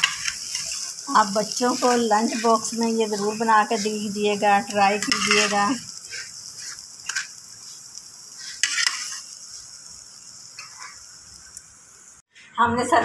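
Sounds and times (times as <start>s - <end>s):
steady hiss: 0.0s - 12.3s
spoon scraping glass plate: 5.0s - 7.3s.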